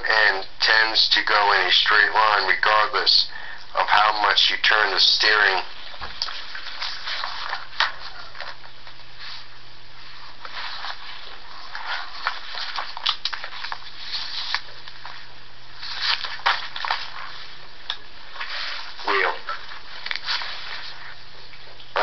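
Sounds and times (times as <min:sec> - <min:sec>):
faint low hum: 0:00.0 - 0:22.0
soft crackles and clicks: 0:12.2 - 0:15.3.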